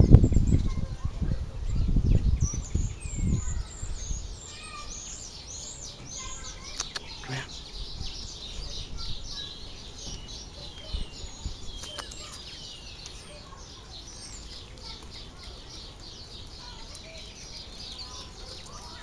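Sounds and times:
wind rumble on microphone: 0:00.0 - 0:04.4, 0:07.5 - 0:12.3
birds chirping: 0:00.0 - 0:19.0.

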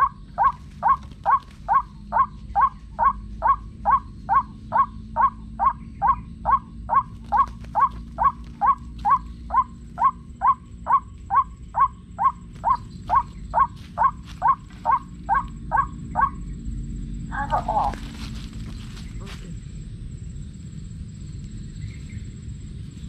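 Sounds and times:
footsteps in dry leaves: 0:12.7 - 0:15.2, 0:17.4 - 0:19.7
waterhen call through speaker: 0:17.3 - 0:18.0.

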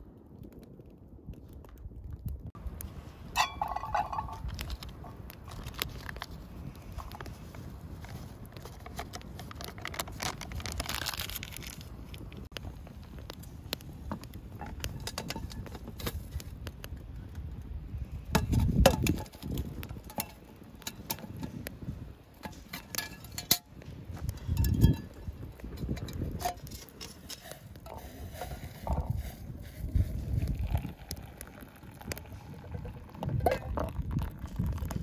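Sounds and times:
low bumps: 0:02.2 - 0:08.8
metal cookware clinking: 0:03.4 - 0:04.6.

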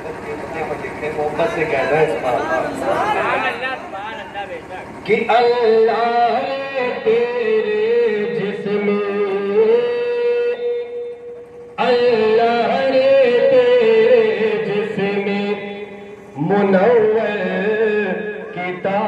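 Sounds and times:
man singing into a microphone: 0:05.1 - 0:11.1, 0:11.8 - 0:19.0.

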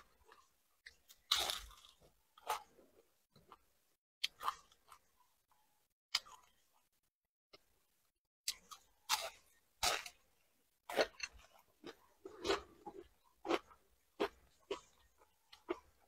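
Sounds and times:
crunchy chewing: 0:00.0 - 0:03.6, 0:10.9 - 0:16.0.

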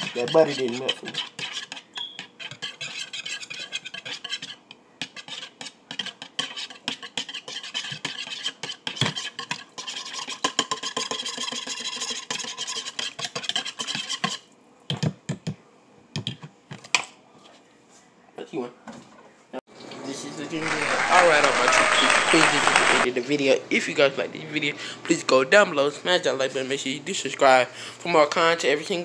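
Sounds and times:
utensil scraping a bowl: 0:00.0 - 0:14.5.

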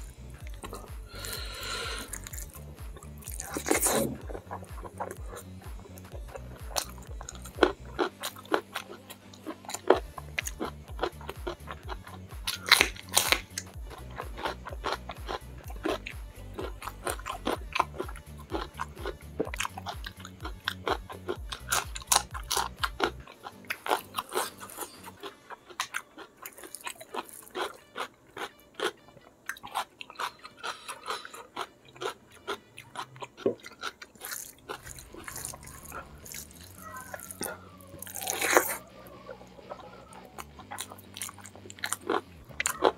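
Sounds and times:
background music beat: 0:00.0 - 0:42.9
person chewing crunchy food: 0:00.0 - 0:42.9
wet mouth clicks: 0:00.5 - 0:07.5.

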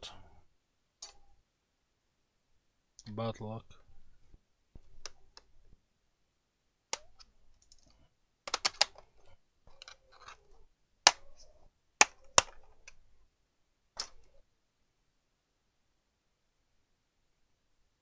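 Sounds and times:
clicks of hard objects handled: 0:06.9 - 0:13.0, 0:14.0 - 0:14.3.

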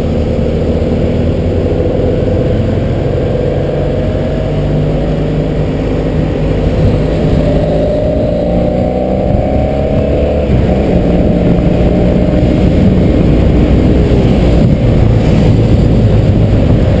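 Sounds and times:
motorcycle engine running: 0:00.0 - 0:17.0
road rumble: 0:00.0 - 0:17.0
wind on microphone: 0:00.1 - 0:17.0.

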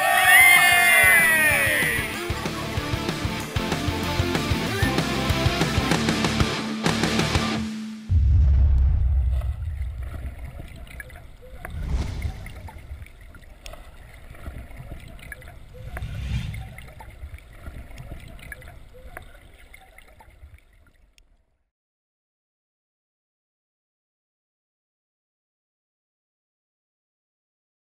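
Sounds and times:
whooshes: 0:08.1 - 0:13.3, 0:15.7 - 0:17.4
deep cinematic rumble: 0:08.1 - 0:13.6, 0:15.6 - 0:17.9.

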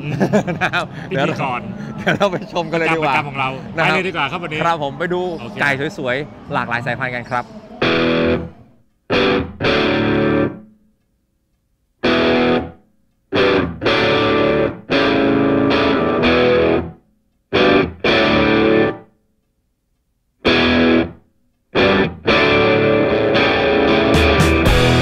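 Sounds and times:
distorted electric guitar stabs: 0:07.8 - 0:10.7, 0:12.0 - 0:19.0, 0:20.4 - 0:21.2, 0:21.8 - 0:25.0.

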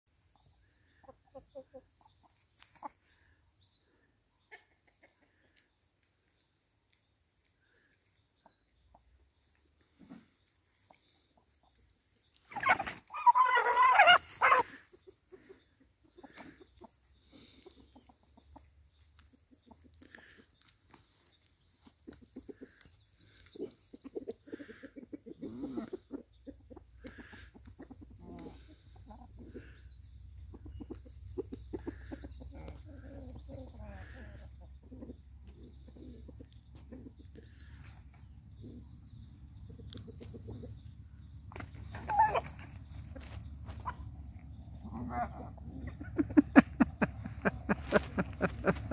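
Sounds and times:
roosters clucking: 0:00.1 - 0:48.9
rooster squawking loudly: 0:12.5 - 0:14.8.

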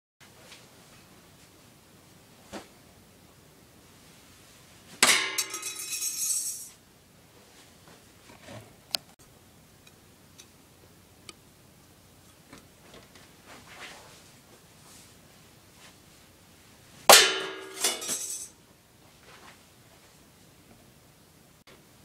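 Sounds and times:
metal star striking and ringing: 0:05.0 - 0:06.8, 0:17.1 - 0:18.5.

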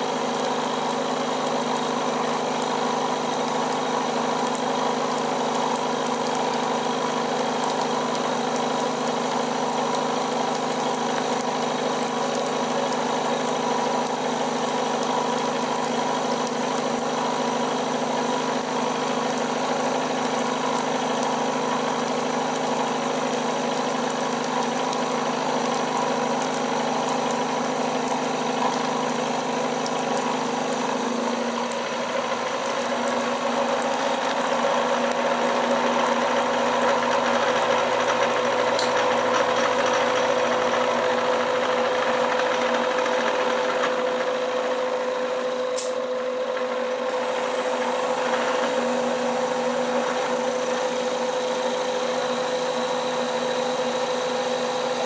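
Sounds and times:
milling machine cutting steel: 0:26.0 - 0:55.0.

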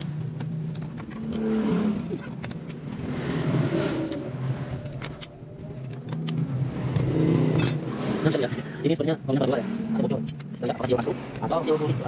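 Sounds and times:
tools clicking against metal bolts: 0:00.0 - 0:02.9, 0:09.9 - 0:11.5
engine humming: 0:00.0 - 0:12.0.

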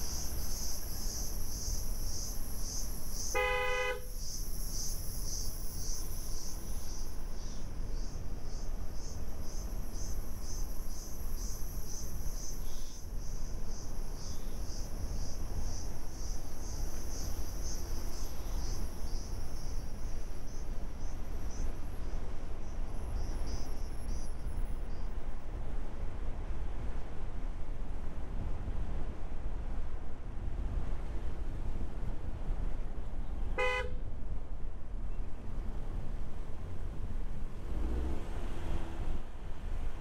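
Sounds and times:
insects chirping in pulsing trill: 0:00.0 - 0:25.1.

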